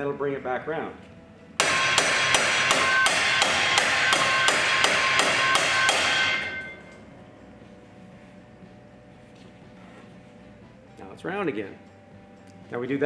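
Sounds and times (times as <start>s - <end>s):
hammer striking ringing metal: 1.6s - 7.0s.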